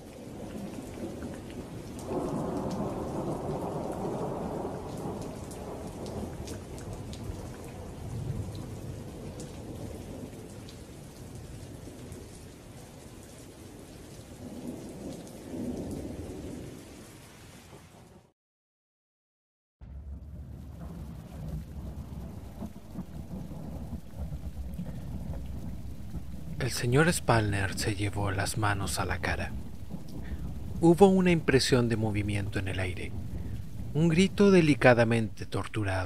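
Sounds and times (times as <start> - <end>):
steady rain: 0.0 - 18.3, 19.8 - 36.0
thunder rolling: 2.0 - 6.3, 19.8 - 36.0.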